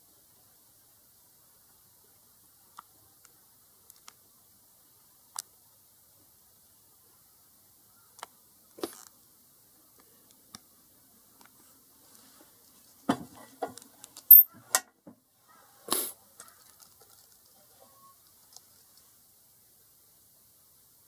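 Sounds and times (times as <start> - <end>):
metal parts knocking and clicking: 13.1 - 14.8.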